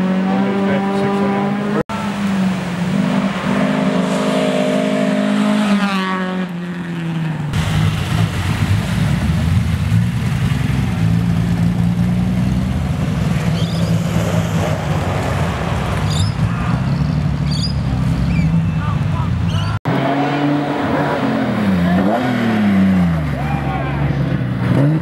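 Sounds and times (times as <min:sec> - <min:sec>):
rally car engine at high revs: 0:00.0 - 0:07.2, 0:19.8 - 0:23.4, 0:24.1 - 0:25.0
deep noisy rumble: 0:07.5 - 0:18.3.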